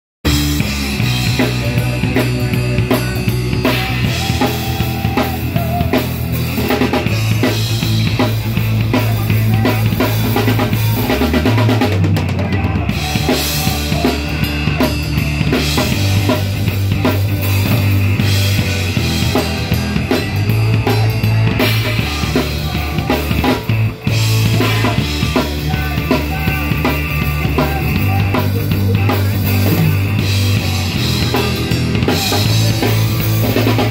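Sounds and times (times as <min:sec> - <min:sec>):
drum kit beat: 0:00.2 - 0:33.9
electric guitars: 0:00.3 - 0:33.9
low bass line: 0:00.3 - 0:33.9.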